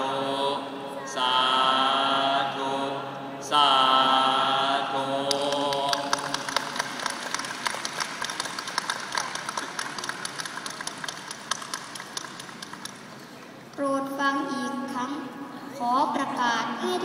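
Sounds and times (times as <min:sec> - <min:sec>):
crowd chanting: 0:00.0 - 0:06.6.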